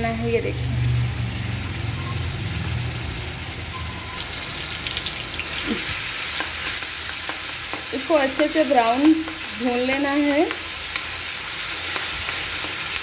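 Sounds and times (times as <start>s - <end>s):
paste sizzling in hot oil: 0.4s - 13.0s
metal ladle clicking against pan: 6.4s - 13.0s.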